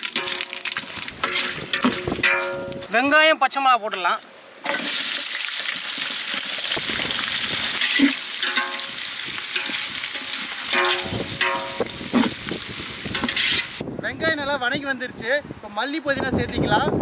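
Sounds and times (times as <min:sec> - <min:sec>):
onions sizzling in hot oil: 0:00.0 - 0:02.7, 0:04.6 - 0:13.8
ladle scraping metal pot: 0:00.0 - 0:02.9, 0:07.6 - 0:12.4, 0:13.1 - 0:13.8.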